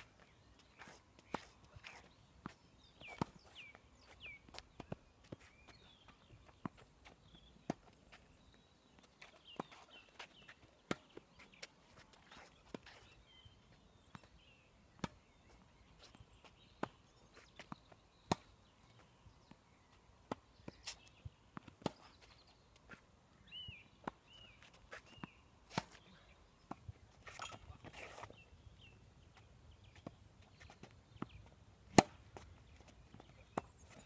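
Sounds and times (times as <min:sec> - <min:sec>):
rackets striking tennis ball: 0:31.9 - 0:32.5.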